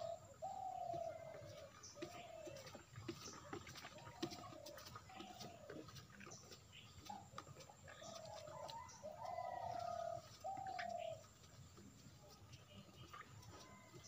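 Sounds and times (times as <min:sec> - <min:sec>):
dove cooing: 0:00.0 - 0:02.9, 0:07.1 - 0:11.3.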